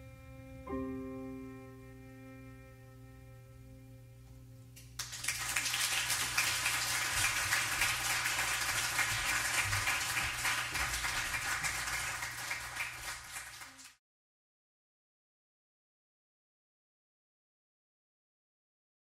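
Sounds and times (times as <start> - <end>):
piano chord: 0.0 - 4.7
audience applause: 5.0 - 14.0.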